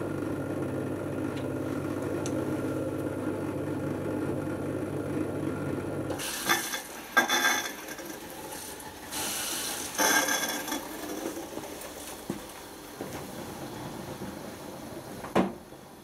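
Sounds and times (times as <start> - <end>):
dishwasher motor hum: 0.0 - 16.0
dishwasher hissing bursts: 6.2 - 11.0.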